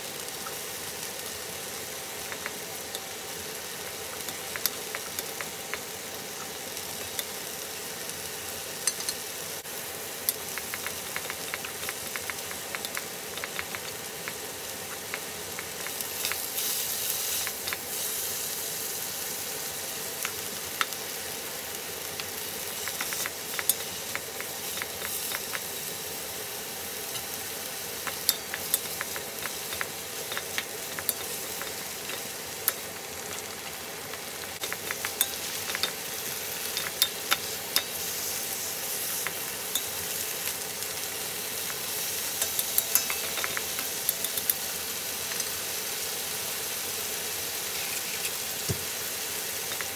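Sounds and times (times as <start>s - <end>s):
meat and vegetables sizzling in a pan: 0.0s - 49.9s
spatula tapping and scraping pan: 10.5s - 16.4s, 42.4s - 44.6s.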